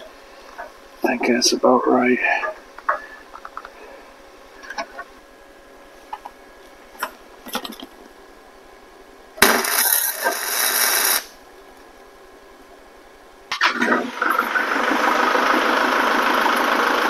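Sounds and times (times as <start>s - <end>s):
welding crackling hiss: 9.4s - 11.8s.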